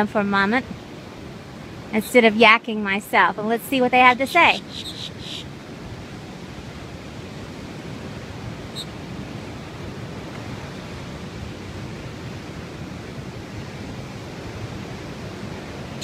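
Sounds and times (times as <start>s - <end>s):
ocean surf: 0.0s - 16.0s
wind: 0.0s - 16.0s
faint high chirp: 4.5s - 5.4s, 8.7s - 8.9s.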